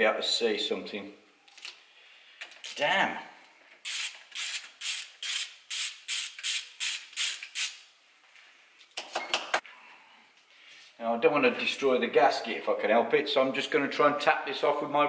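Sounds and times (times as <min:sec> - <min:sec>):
ratchet spanner ratcheting: 0:03.8 - 0:07.8.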